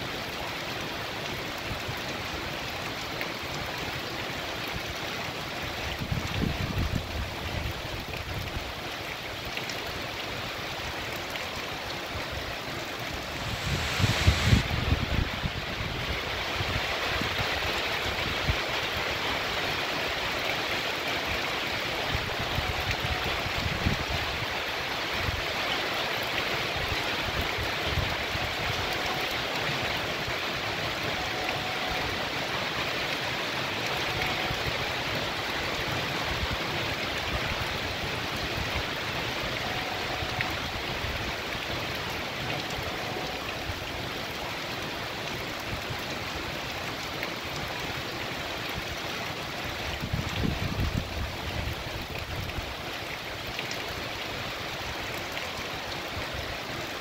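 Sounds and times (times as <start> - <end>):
heavy rain on pavement: 0.0 - 57.0
rainwater running: 0.0 - 57.0.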